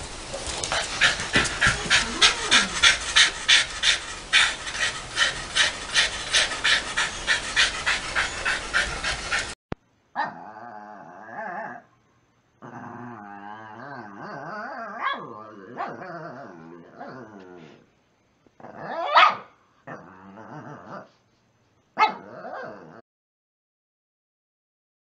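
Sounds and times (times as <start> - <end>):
dog grumbling: 0.4 - 9.6
dog panting: 0.4 - 9.6.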